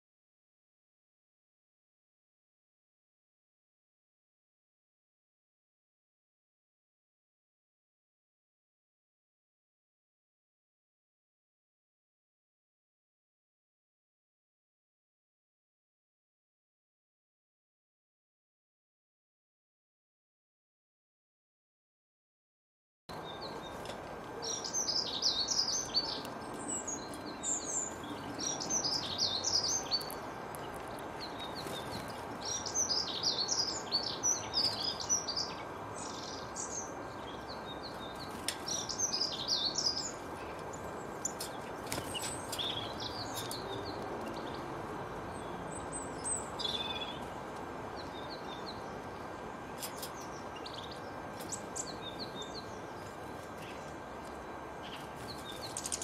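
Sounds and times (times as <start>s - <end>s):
songbirds twittering: 23.1s - 56.0s.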